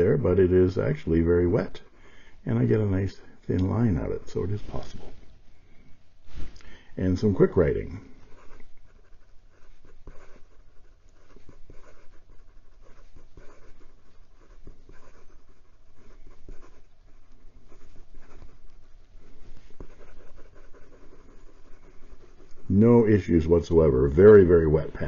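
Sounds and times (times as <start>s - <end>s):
pen nib scratching on paper: 7.2s - 25.0s.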